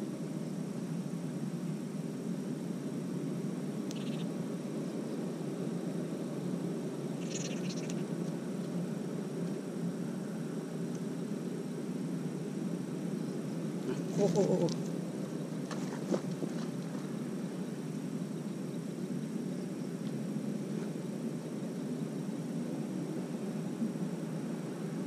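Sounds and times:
outdoor background noise: 0.0 - 25.0
animal call: 13.8 - 14.9.

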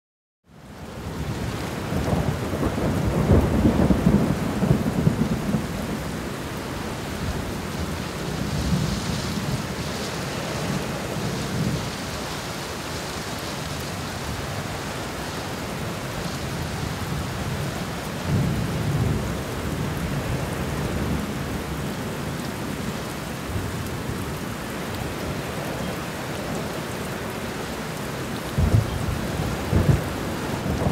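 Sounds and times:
rushing water hiss: 5.0 - 18.4.

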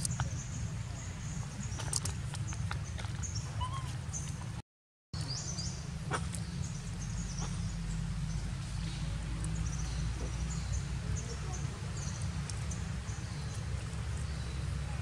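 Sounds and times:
monkeys squeaking and chirping: 3.5 - 4.3.

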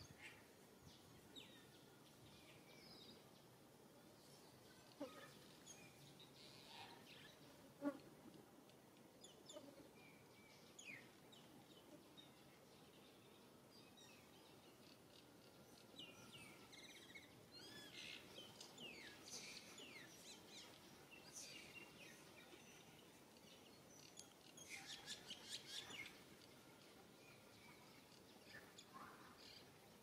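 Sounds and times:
faint bird chirps and calls: 4.3 - 7.5, 9.2 - 30.0.

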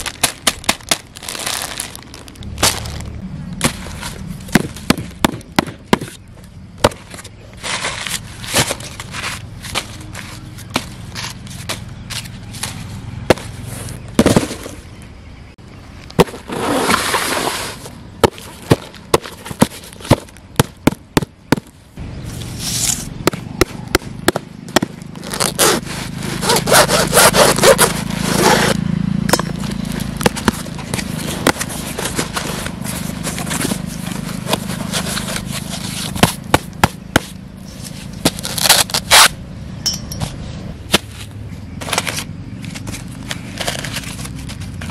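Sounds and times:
newspaper crumpling and rustling: 0.0 - 4.2, 41.8 - 44.9.

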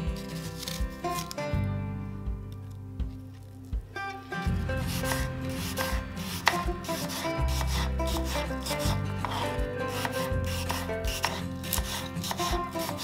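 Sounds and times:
knife slicing apple: 0.0 - 1.4, 4.4 - 13.0
soft background music: 0.0 - 13.0.

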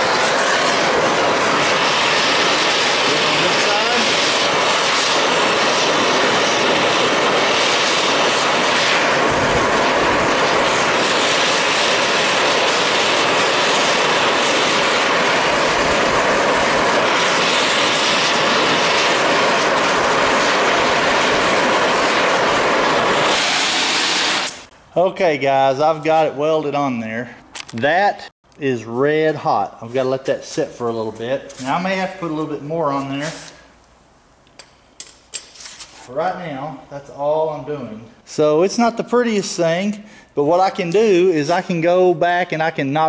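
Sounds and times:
cutting torch hissing: 0.0 - 26.9, 29.9 - 33.8.

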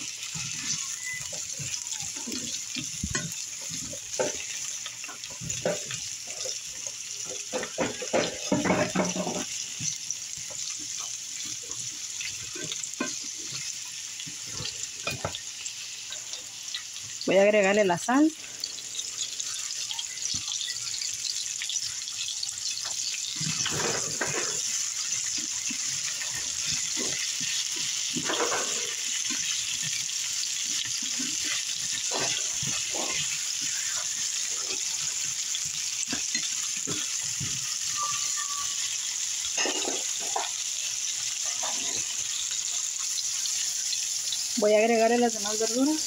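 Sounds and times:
vegetables sizzling in oil: 0.0 - 46.0
spatula scraping pan: 0.1 - 9.6, 21.0 - 42.8.

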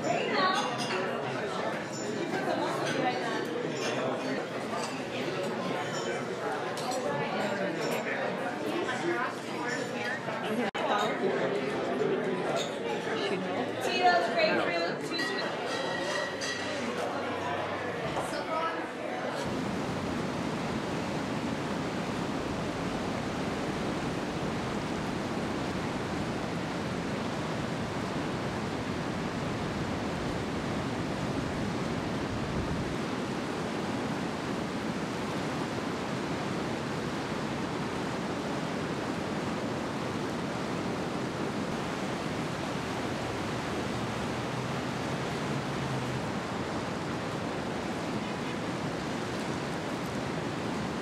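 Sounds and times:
heavy ocean surf: 19.4 - 51.0
rushing shallow water: 19.4 - 51.0.

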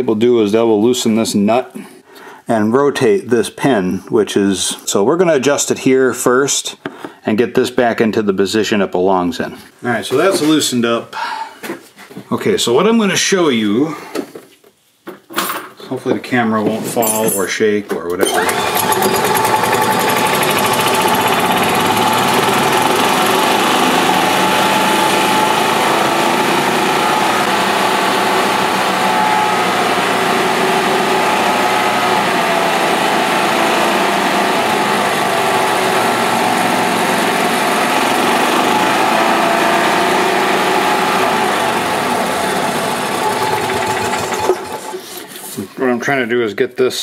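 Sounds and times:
golf cart engine running: 18.3 - 45.1.

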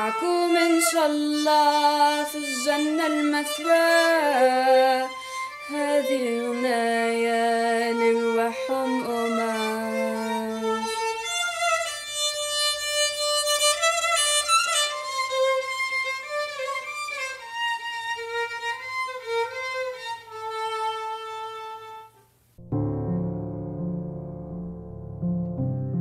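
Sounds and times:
solo violin melody: 0.0 - 22.3
piano chords: 22.6 - 26.0.

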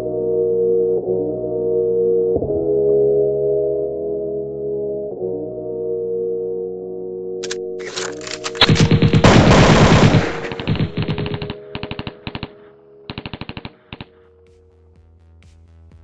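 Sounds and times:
background music: 0.0 - 16.0
rapid bursts of sharp hits: 7.4 - 14.1.

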